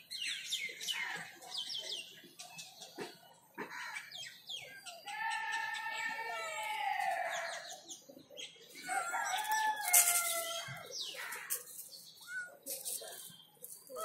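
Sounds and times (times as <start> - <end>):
rooster crowing: 8.8 - 10.8.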